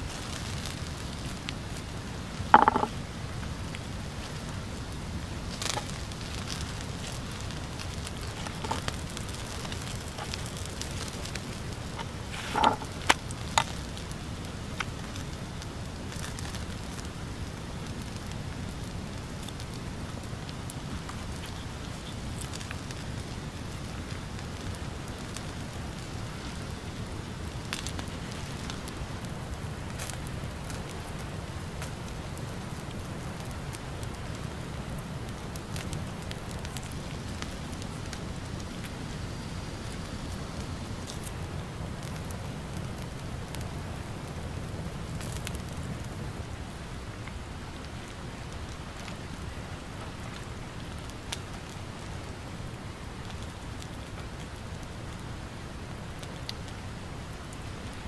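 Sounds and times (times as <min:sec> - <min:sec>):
wood fire crackling: 0:00.0 - 0:58.0.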